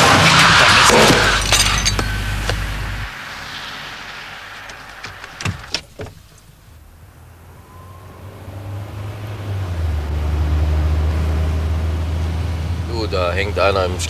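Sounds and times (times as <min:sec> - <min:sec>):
sharp clinks and knocks of car crash: 0:00.0 - 0:06.9
car engine approaching: 0:00.0 - 0:14.0.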